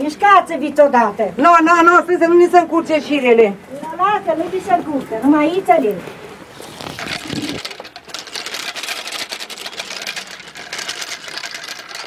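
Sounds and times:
yarn clicking off wooden spools: 6.7s - 12.0s.

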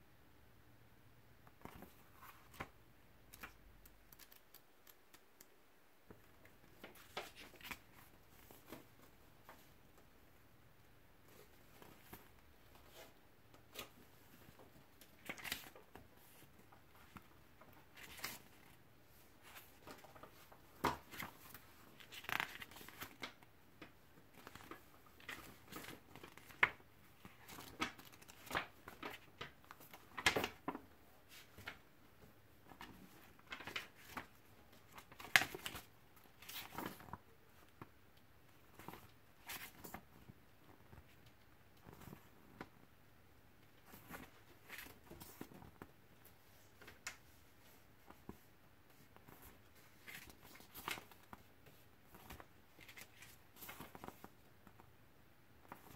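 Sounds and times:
paper pages turning: 1.6s - 2.7s, 6.6s - 9.6s, 15.0s - 18.8s, 19.4s - 31.8s, 32.7s - 37.8s, 49.2s - 51.5s, 52.1s - 54.3s.

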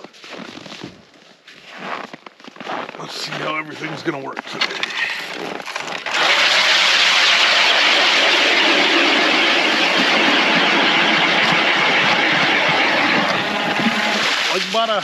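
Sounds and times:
power ice auger drilling: 4.5s - 15.0s.

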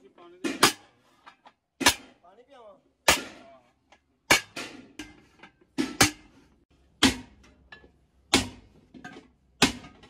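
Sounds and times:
hammer striking metal pot: 4.3s - 6.3s, 7.0s - 10.0s.

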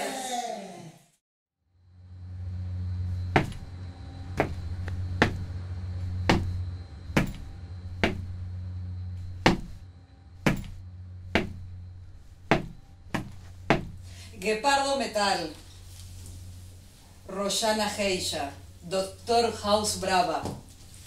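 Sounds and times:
steady low hum: 1.6s - 21.0s
sharp knocks: 3.3s - 3.7s, 4.3s - 5.6s, 6.2s - 8.4s, 9.4s - 9.8s, 10.4s - 11.7s, 12.4s - 14.0s.

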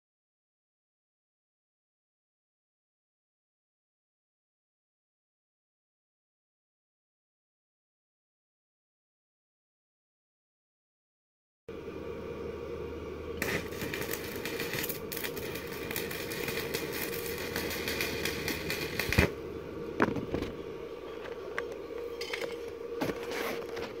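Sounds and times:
steady hum: 11.7s - 24.0s
welding arc crackling hiss: 13.3s - 19.5s.

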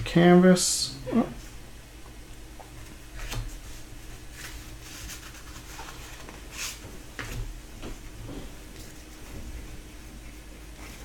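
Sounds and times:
low steady hum: 0.0s - 11.0s
cards swishing and rustling: 3.2s - 7.5s.

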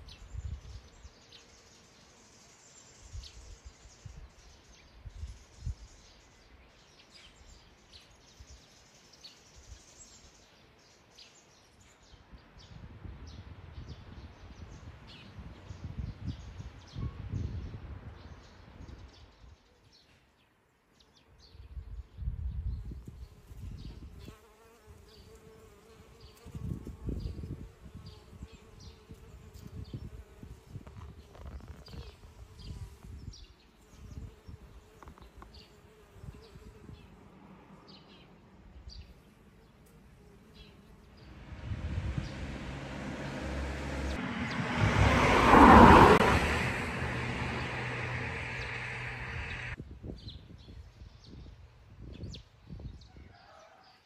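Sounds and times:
loud rushing sound: 41.2s - 49.8s
insects buzzing: 45.2s - 49.8s.

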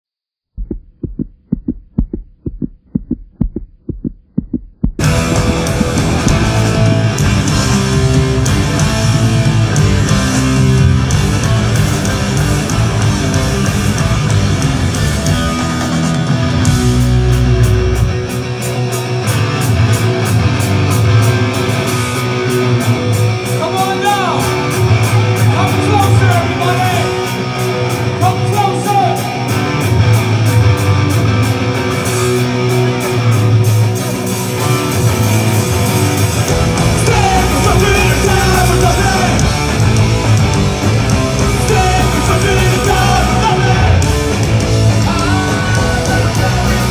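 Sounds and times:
punk rock band playing: 5.0s - 46.9s
person singing: 36.7s - 39.8s, 41.3s - 44.2s, 45.0s - 46.9s.

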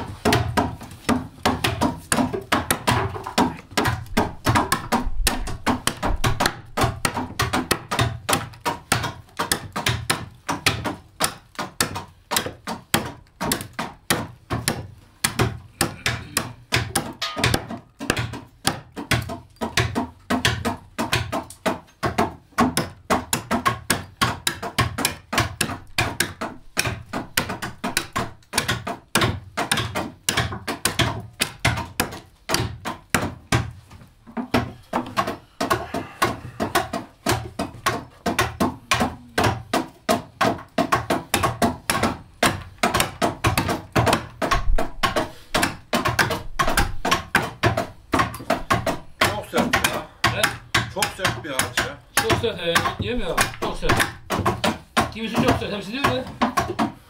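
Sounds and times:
adzes chopping wood: 0.0s - 57.0s.

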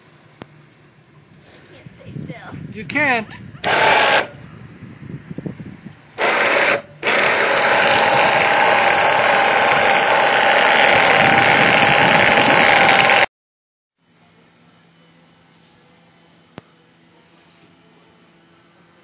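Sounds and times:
winch motor whine: 3.6s - 4.6s, 6.1s - 13.3s.

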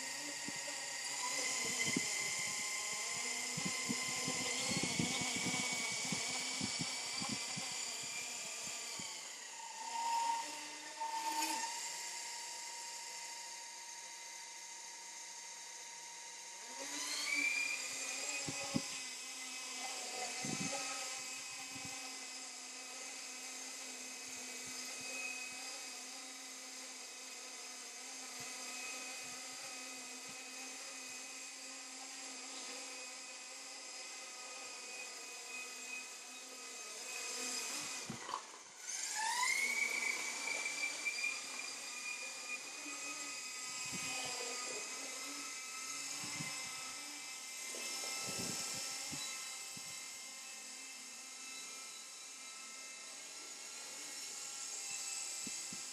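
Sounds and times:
high-pitched electric motor whine: 0.0s - 55.9s.

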